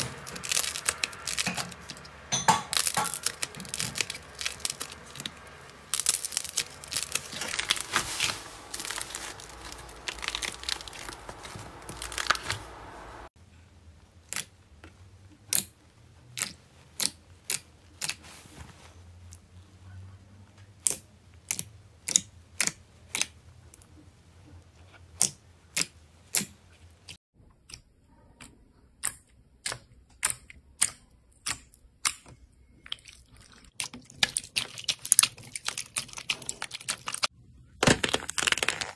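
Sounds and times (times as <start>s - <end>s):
clay crackling and crunching: 0.0s - 13.4s, 28.5s - 38.9s.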